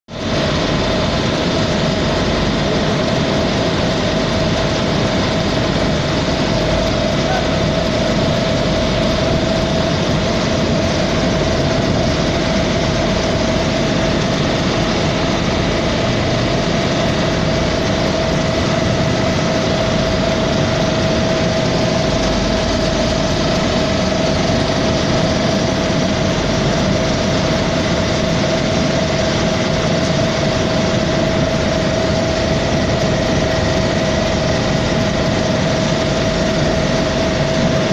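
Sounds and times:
cooler fan droning: 0:00.1 - 0:37.9.

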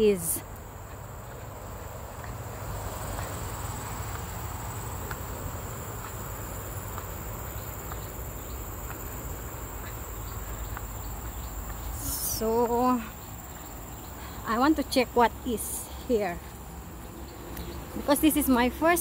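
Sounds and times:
faint light ticks: 0:17.5 - 0:17.8.

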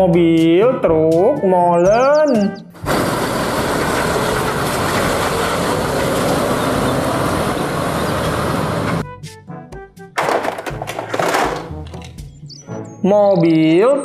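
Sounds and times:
diesel truck engine rumble: 0:02.5 - 0:09.0.

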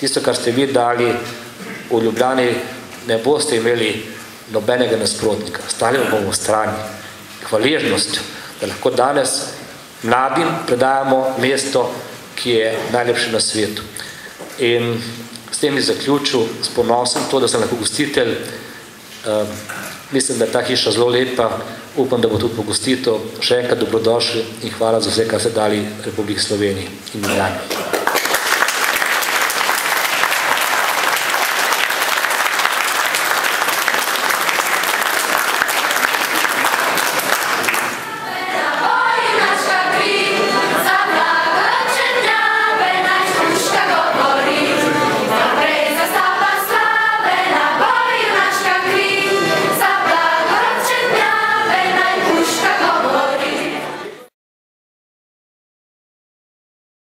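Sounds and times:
audience applauding: 0:27.6 - 0:42.2
children's choir singing: 0:29.4 - 0:54.2.

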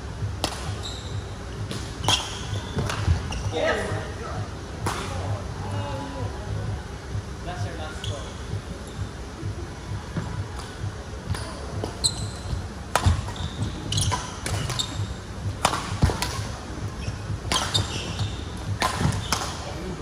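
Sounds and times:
racket hitting shuttlecock: 0:00.4 - 0:00.8, 0:01.7 - 0:03.2, 0:12.9 - 0:15.0, 0:15.6 - 0:16.6, 0:17.5 - 0:19.6
shoe squeaks on court: 0:00.7 - 0:01.3, 0:02.0 - 0:03.6, 0:11.9 - 0:15.1, 0:17.0 - 0:19.6.

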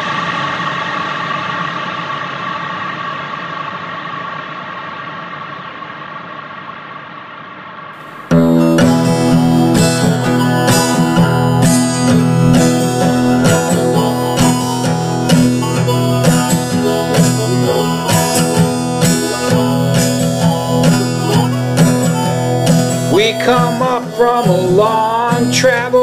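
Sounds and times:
acoustic guitar strumming: 0:08.0 - 0:26.0.

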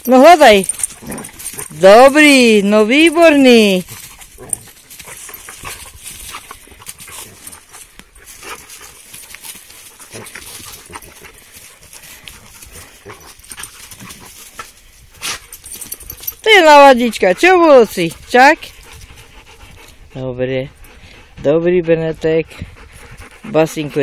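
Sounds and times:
dogs scuffling in dry leaves: 0:00.0 - 0:18.6.

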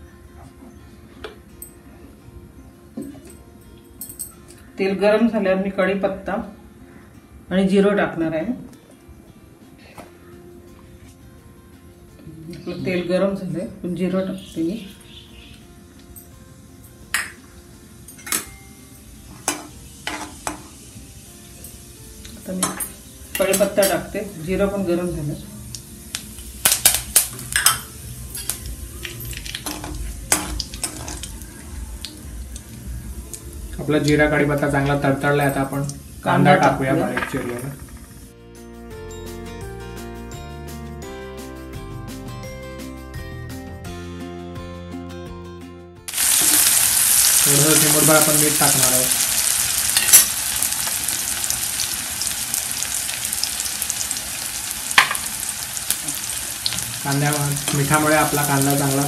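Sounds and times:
leaves popping in hot oil: 0:25.7 - 0:38.2, 0:46.1 - 0:59.0.

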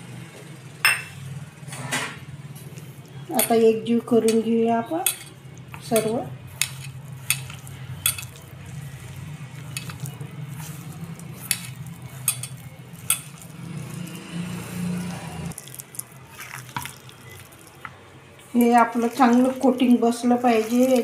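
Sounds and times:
hand mixing chicken in flour: 0:05.8 - 0:21.0
hand clinking against steel bowl: 0:11.4 - 0:13.4.

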